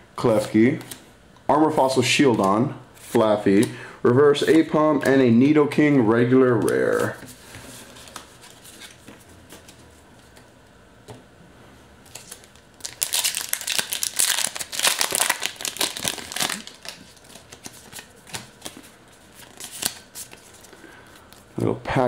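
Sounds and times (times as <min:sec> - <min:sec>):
cards handled with clicks and rustles: 0:00.3 - 0:01.0, 0:02.2 - 0:05.4, 0:06.5 - 0:10.5, 0:12.0 - 0:21.8
foil wrapper crinkling: 0:12.1 - 0:20.6.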